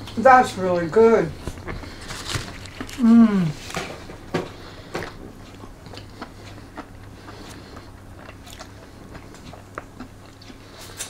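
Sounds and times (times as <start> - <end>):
faint low hum: 0.0 - 11.0
mouth chewing crunchy food: 0.0 - 11.0.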